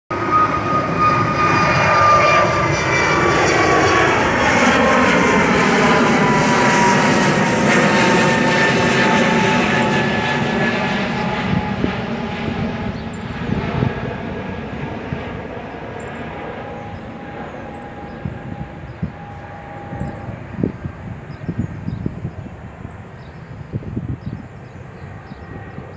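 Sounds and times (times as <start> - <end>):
jet engine rush with whine: 0.1 - 25.9.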